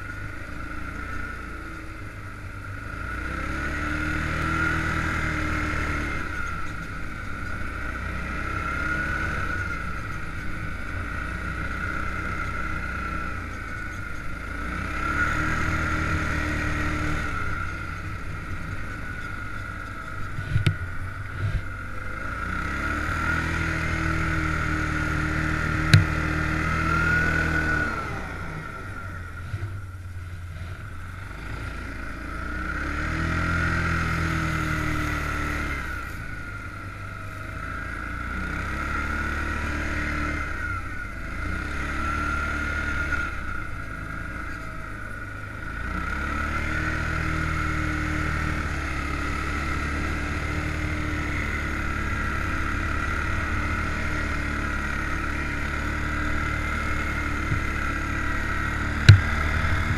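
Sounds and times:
atv engine revving: 0.0s - 59.9s
sharp knocks: 59.0s - 59.9s.

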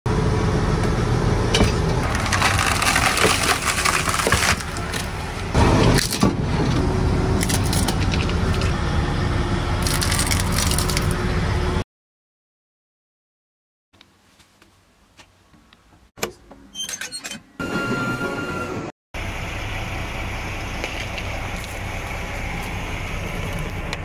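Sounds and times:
objects crushed with cracks: 2.0s - 5.2s.

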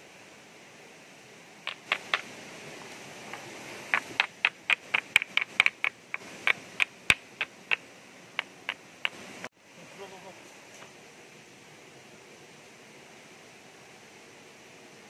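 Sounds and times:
rocks clacking together: 1.7s - 7.8s, 8.4s - 9.2s.

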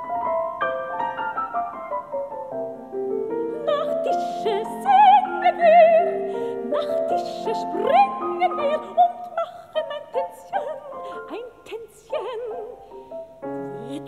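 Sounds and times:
piano accompaniment: 0.0s - 14.0s
soprano singing with vibrato: 3.4s - 13.1s, 13.7s - 14.0s.

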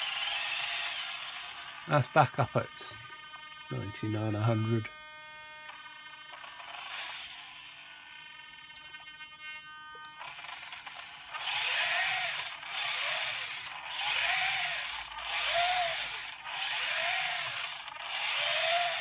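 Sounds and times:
motor whine: 0.0s - 19.0s.

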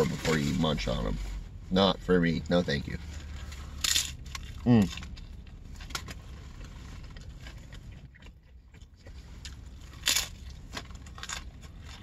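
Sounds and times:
low steady rumble: 0.0s - 12.0s
chewing crunches: 3.3s - 12.0s.

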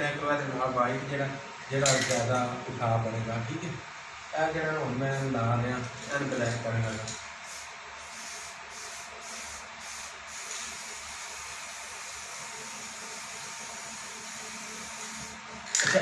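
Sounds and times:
spray paint can hissing: 7.4s - 15.9s.

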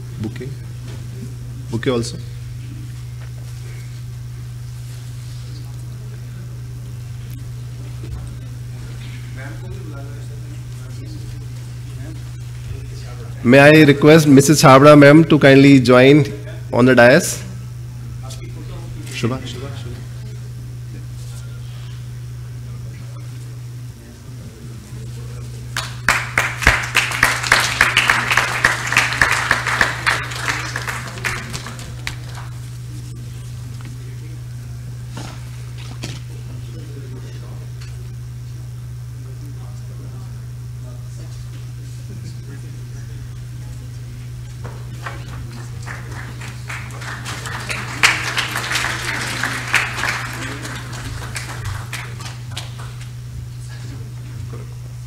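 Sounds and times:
low electrical hum: 0.0s - 55.0s
audience applauding: 25.7s - 32.7s, 44.8s - 53.1s.

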